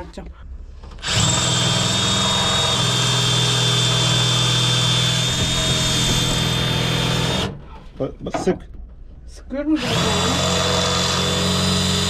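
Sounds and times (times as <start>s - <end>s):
cordless drill whining: 0.9s - 7.6s, 9.8s - 12.0s.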